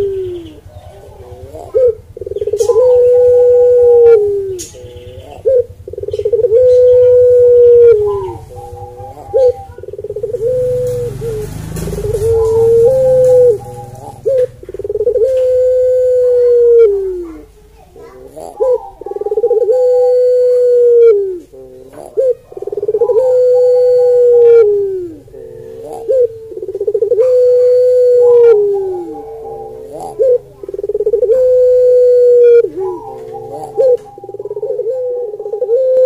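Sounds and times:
dove cooing: 0:00.0 - 0:36.0.

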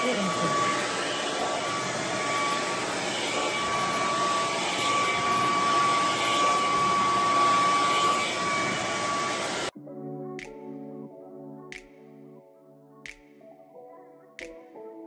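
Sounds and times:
hair dryer running: 0:00.0 - 0:09.7.

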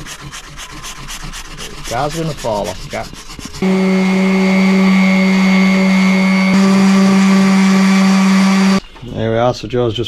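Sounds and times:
electric orbital sander running: 0:03.6 - 0:08.8.

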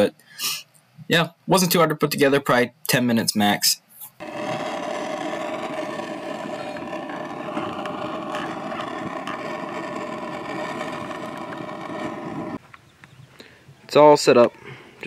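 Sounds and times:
gas torch burning: 0:04.2 - 0:12.6.

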